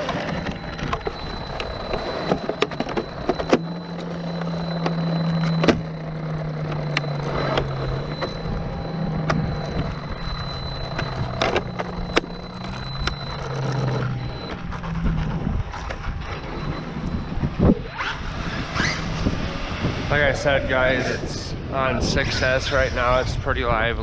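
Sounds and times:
steady low hum: 0:00.0 - 0:18.6.

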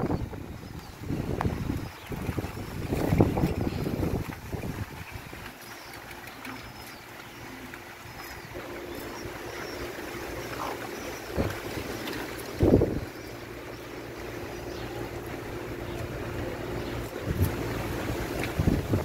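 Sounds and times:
strong wind blowing: 0:00.0 - 0:05.5, 0:12.5 - 0:13.2, 0:17.2 - 0:19.0
wind gust buffeting microphone: 0:00.0 - 0:05.5, 0:08.4 - 0:13.2, 0:16.2 - 0:19.0.

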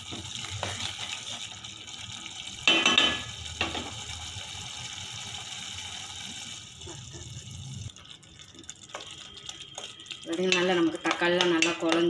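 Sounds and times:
spatula stirring and scraping pot: 0:00.0 - 0:01.6
thick sauce bubbling in a pot: 0:00.0 - 0:12.0
spatula knocking metal pot: 0:10.5 - 0:12.0.

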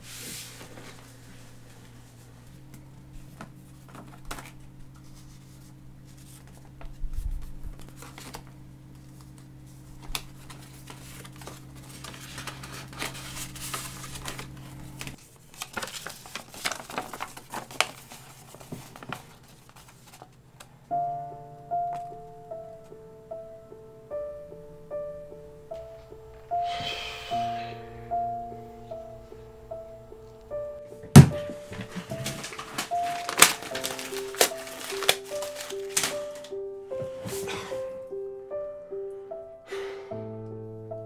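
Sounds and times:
paper crinkling and rustling: 0:00.0 - 0:20.7, 0:31.0 - 0:37.8
low steady hum: 0:00.0 - 0:39.6
piano music: 0:02.0 - 0:15.2, 0:20.9 - 0:41.0
envelope tearing: 0:03.7 - 0:08.5, 0:09.3 - 0:20.4, 0:31.4 - 0:36.6.

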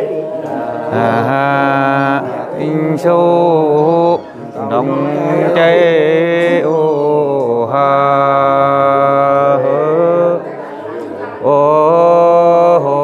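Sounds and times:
person singing unaccompanied: 0:00.0 - 0:10.6.

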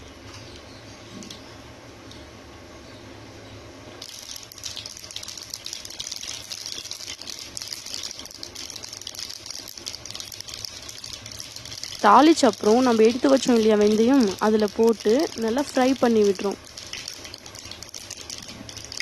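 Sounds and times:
seeds sizzling and popping in oil: 0:04.0 - 0:19.0.

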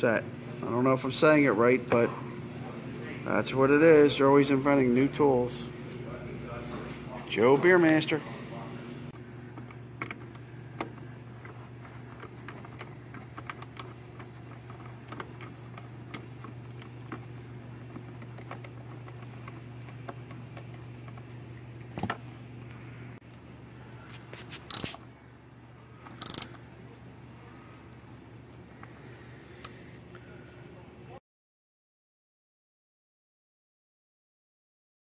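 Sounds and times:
steady low hum: 0:00.0 - 0:31.2
ratchet wrench clicking: 0:24.6 - 0:25.0, 0:26.1 - 0:26.6.

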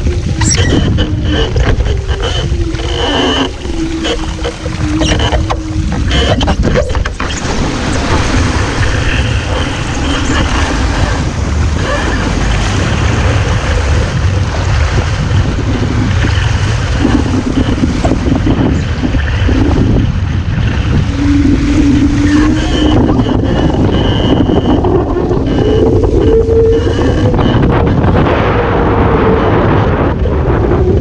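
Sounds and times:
water rushing along hull: 0:00.0 - 0:31.0
wind buffeting microphone: 0:00.0 - 0:31.0
faint humming tone: 0:20.8 - 0:29.7.

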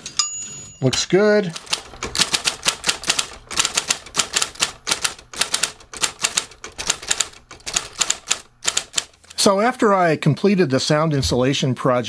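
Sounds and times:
electric typewriter keystrokes: 0:00.9 - 0:09.4.

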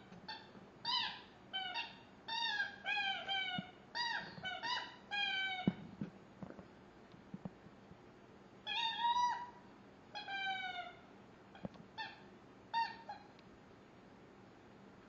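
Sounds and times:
chew toy squeaking: 0:00.3 - 0:05.8, 0:08.7 - 0:09.5.

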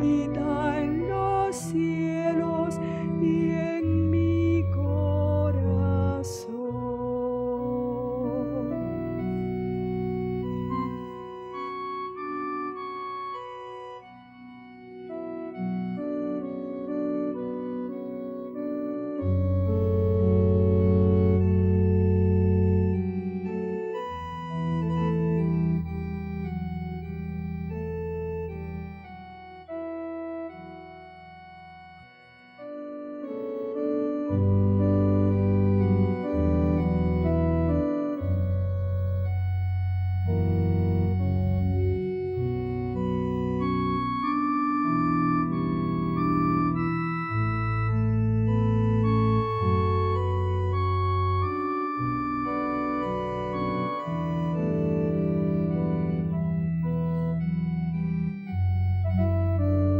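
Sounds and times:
organ playing sustained chords: 0:00.0 - 0:59.9.

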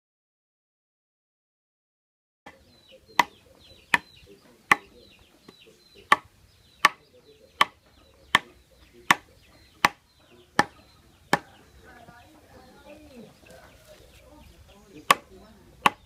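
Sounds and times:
wooden stick pounding bark: 0:02.5 - 0:12.4, 0:13.5 - 0:16.0.

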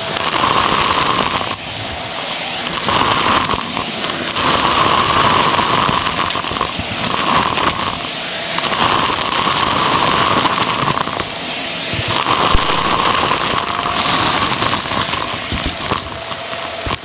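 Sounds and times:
debris crunching up vacuum tube: 0:00.0 - 0:17.0
stick vacuum whining: 0:00.0 - 0:17.0.

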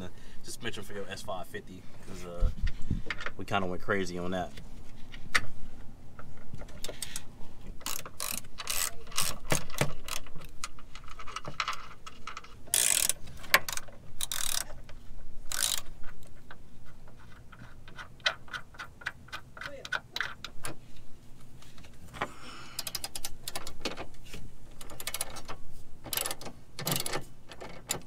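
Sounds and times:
socket ratchet clicking: 0:07.8 - 0:10.8, 0:12.3 - 0:14.7, 0:15.5 - 0:16.0, 0:22.7 - 0:24.0, 0:24.8 - 0:28.0.

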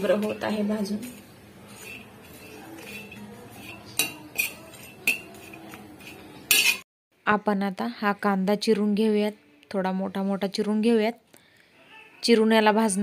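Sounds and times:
spoon stirring on a griddle: 0:00.0 - 0:06.8
metal clinking against pan: 0:01.8 - 0:06.8.

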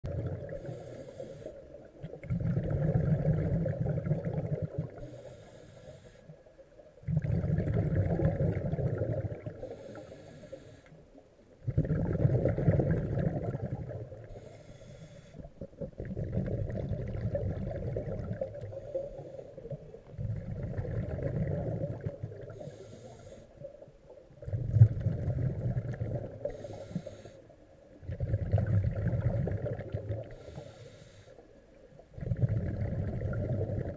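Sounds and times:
exhaled bubbles rushing: 0:00.1 - 0:00.8, 0:02.0 - 0:05.2, 0:07.0 - 0:09.7, 0:11.6 - 0:14.5, 0:15.6 - 0:18.9, 0:19.9 - 0:22.7, 0:24.4 - 0:26.6, 0:28.0 - 0:30.4, 0:32.1 - 0:33.9
regulator inhale hiss: 0:00.5 - 0:01.9, 0:05.0 - 0:06.6, 0:09.6 - 0:11.1, 0:14.2 - 0:15.5, 0:18.7 - 0:19.8, 0:22.5 - 0:23.8, 0:26.4 - 0:27.6, 0:30.3 - 0:31.6.

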